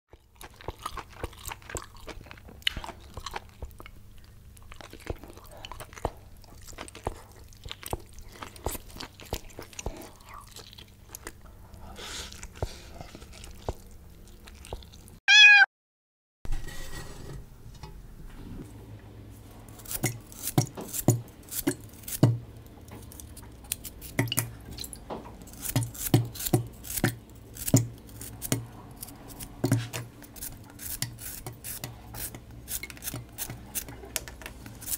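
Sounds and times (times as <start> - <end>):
chewing and slurping noodles: 0.1 - 15.2
short ringing tone: 15.3 - 15.7
knife cutting vegetable: 19.8 - 22.4, 25.5 - 34.9.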